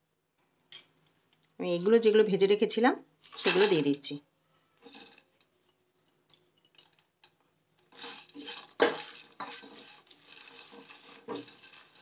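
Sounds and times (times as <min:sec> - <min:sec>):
spatula scraping pan: 0:04.8 - 0:05.2, 0:07.9 - 0:12.0.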